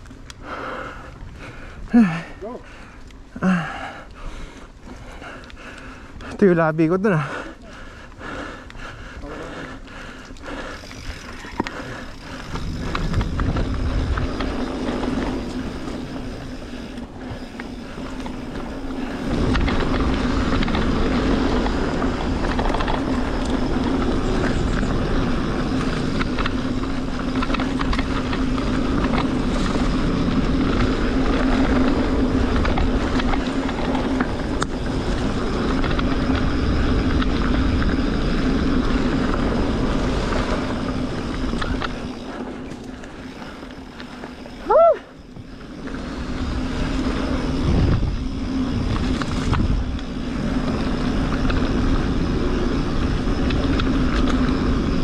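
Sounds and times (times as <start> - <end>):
bike clicks and rattles: 0.0 - 55.0
bike tyres rolling on dirt: 0.0 - 55.0
wind rush: 9.9 - 42.6, 44.6 - 55.0.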